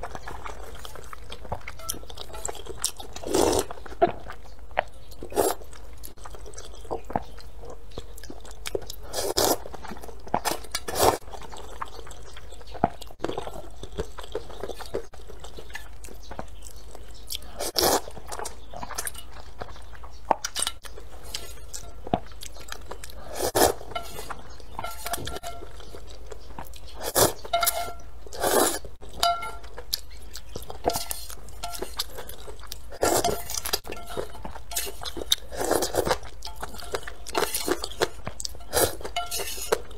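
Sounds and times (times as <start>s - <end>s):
person chewing: 0.0s - 39.9s
person slurping noodles: 28.4s - 28.8s.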